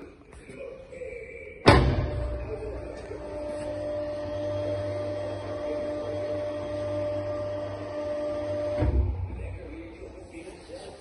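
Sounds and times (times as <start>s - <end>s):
loud knock: 1.6s - 2.6s.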